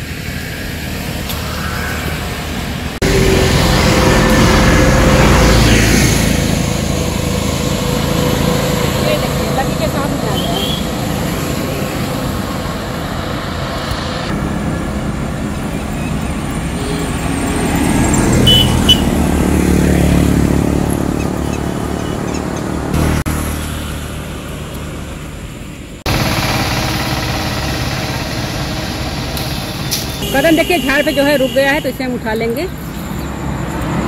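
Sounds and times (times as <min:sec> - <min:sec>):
motorcycle passing: 0:00.0 - 0:15.4, 0:16.6 - 0:22.1.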